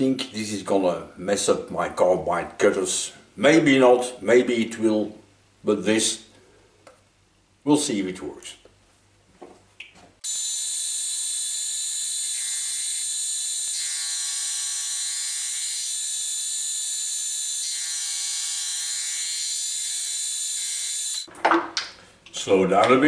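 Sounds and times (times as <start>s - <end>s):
milling machine cutting steel: 10.2s - 21.3s.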